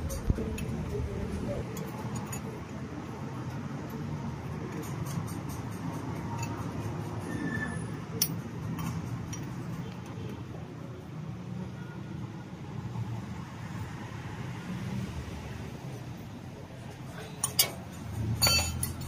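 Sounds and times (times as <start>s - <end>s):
spanner clinking on metal fitting: 0.0s - 9.7s, 17.2s - 19.0s.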